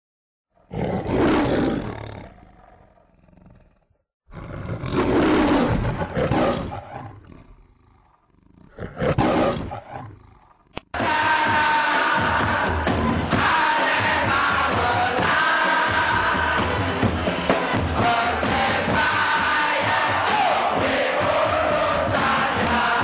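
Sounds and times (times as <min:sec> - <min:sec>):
lion roaring: 0:00.6 - 0:10.7
crowd chanting: 0:10.9 - 0:23.0
music: 0:11.0 - 0:23.0.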